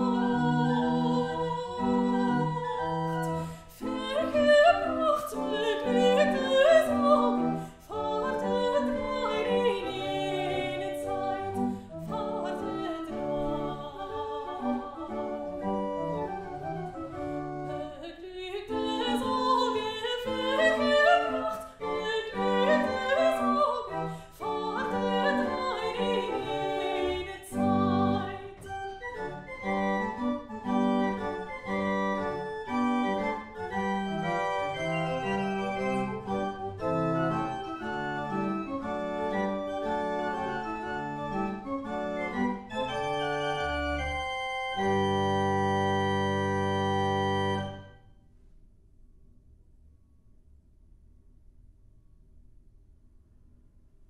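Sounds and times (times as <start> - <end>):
soprano singing with vibrato: 0.0 - 16.1, 16.7 - 29.4
pipe organ: 14.4 - 17.8, 20.3 - 48.0.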